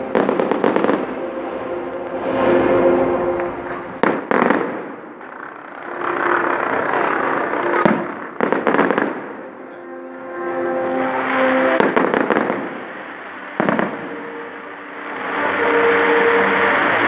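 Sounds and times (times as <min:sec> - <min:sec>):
fireworks crackling and hissing: 0:00.0 - 0:01.3, 0:02.2 - 0:17.0.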